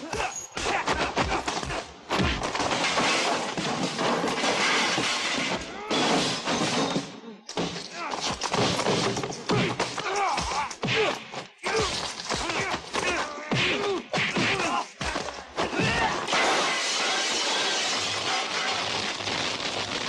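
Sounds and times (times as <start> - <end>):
shouts and grunts: 0.0 - 1.9, 7.9 - 8.3, 9.5 - 17.7
punch and kick hits: 0.1 - 6.5, 7.5 - 16.4
smashing and breaking crashes: 0.6 - 11.0, 11.7 - 20.0.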